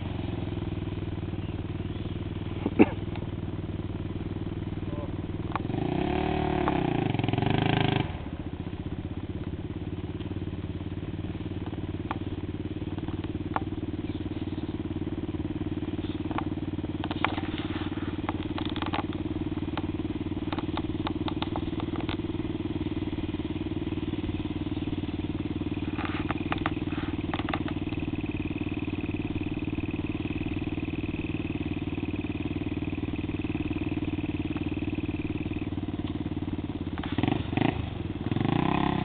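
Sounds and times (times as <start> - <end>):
atv engine idling: 0.0 - 39.0
clicks and rattles: 16.3 - 19.9, 20.5 - 22.3.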